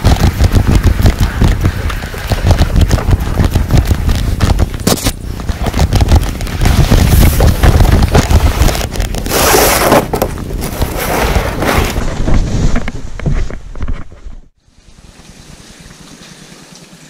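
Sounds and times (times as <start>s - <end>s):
microphone rumble: 0.0s - 14.5s
canoe scraping over sand and rock: 1.2s - 13.6s.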